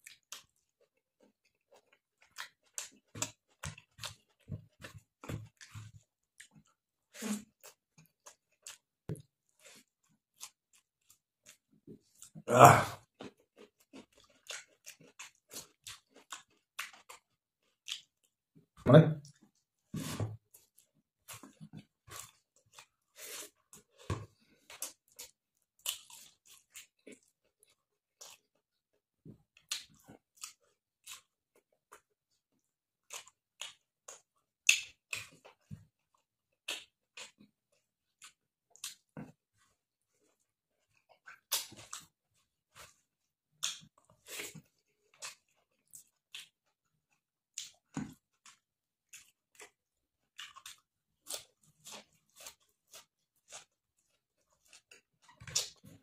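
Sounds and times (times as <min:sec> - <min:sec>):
man chewing: 0:00.0 - 0:18.4, 0:19.2 - 0:28.8, 0:29.6 - 0:56.0.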